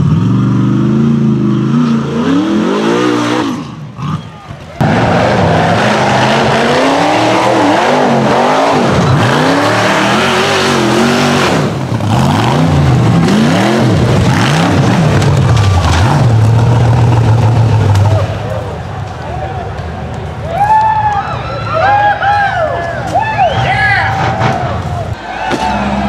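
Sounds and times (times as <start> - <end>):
buggy engine revving: 0.0 - 18.7.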